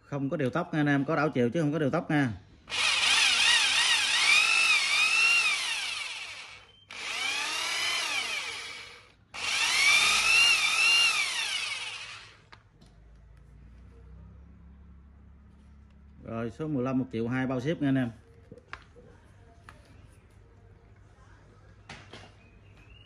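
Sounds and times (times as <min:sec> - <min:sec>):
hammer drill motor whine: 0:02.7 - 0:12.5.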